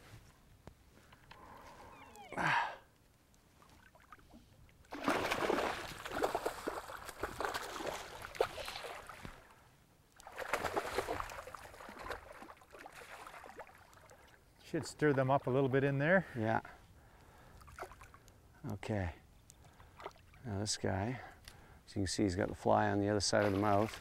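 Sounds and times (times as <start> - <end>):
fish thrashing and splashing: 4.9 - 9.4, 10.2 - 14.2.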